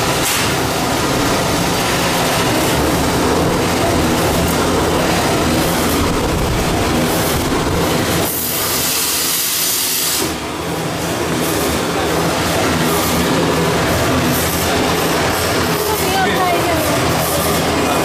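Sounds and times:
machine hum and rattle: 0.0 - 18.0
loud air hiss: 8.1 - 10.4.

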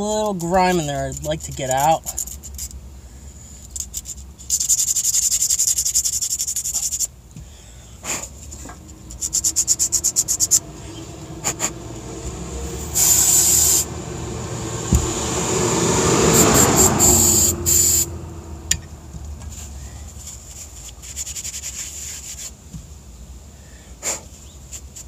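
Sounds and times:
scratchy scrubbing strokes: 8.0 - 12.0, 19.5 - 22.6
aerosol spray hissing: 12.8 - 13.9, 16.3 - 18.1.

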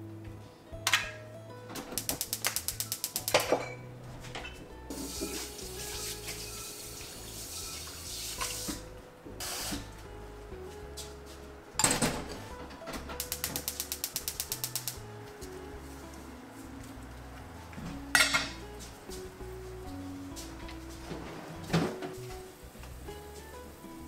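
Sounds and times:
soft background music: 0.0 - 24.0
rapid clicks: 2.0 - 3.5, 13.2 - 15.0
water running from a tap: 4.9 - 8.8.

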